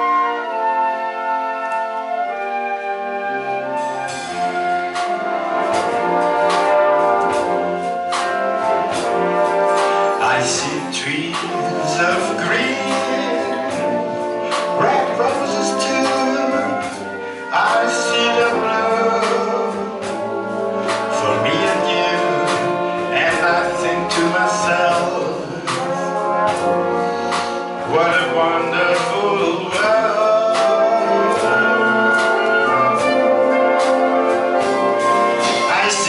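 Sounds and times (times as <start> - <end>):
wind band playing: 0.0 - 36.0
man singing into a microphone: 10.2 - 13.8, 14.8 - 19.9, 21.2 - 26.3, 27.9 - 31.8, 35.6 - 36.0.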